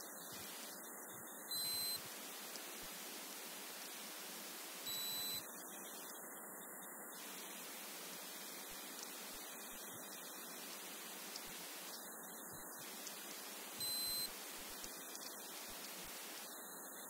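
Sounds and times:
steady hiss: 0:00.0 - 0:17.0
short high electronic beeps: 0:01.5 - 0:02.0, 0:04.9 - 0:05.4, 0:13.8 - 0:14.3.

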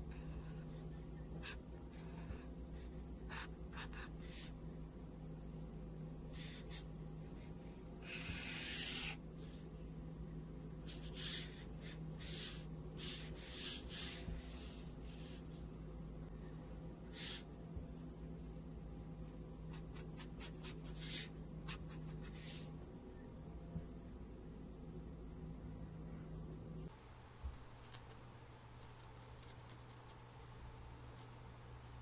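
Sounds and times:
steady low hum: 0:00.0 - 0:32.0
marker drawing on paper: 0:01.4 - 0:04.6, 0:06.3 - 0:09.6, 0:10.8 - 0:15.6, 0:17.1 - 0:17.5, 0:19.7 - 0:22.7.

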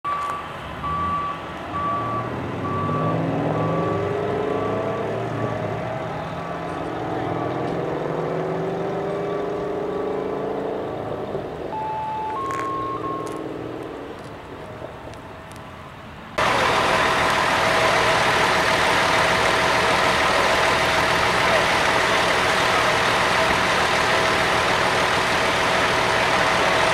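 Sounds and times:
reversing alarm beeping: 0:00.1 - 0:05.8, 0:11.7 - 0:13.4
heavy engine running: 0:00.1 - 0:15.5, 0:16.4 - 0:26.9
short electronic tones: 0:11.7 - 0:13.6.

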